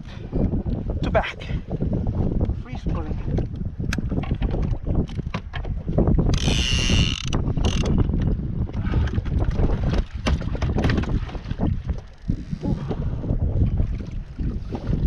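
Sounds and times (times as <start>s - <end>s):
water: 0.0s - 15.0s
wind noise on microphone: 0.0s - 15.0s
fishing gear knocking and rattling: 3.2s - 13.0s
fishing reel ratcheting: 6.3s - 8.0s.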